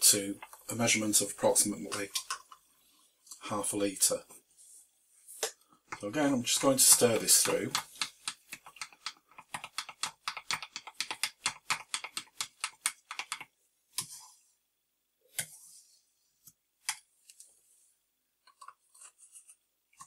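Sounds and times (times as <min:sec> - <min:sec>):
stir stick clicking in plastic jug: 0:05.4 - 0:13.5.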